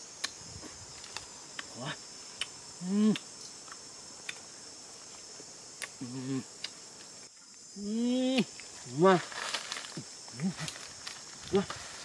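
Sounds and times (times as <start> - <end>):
insect chorus: 0.0 - 12.0
person humming: 2.8 - 3.3, 6.0 - 6.6, 7.8 - 8.5.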